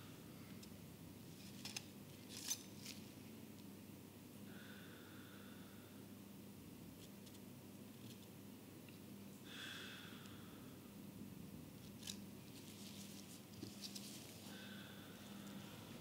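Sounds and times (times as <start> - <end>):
soft rustles: 11.8 - 14.6.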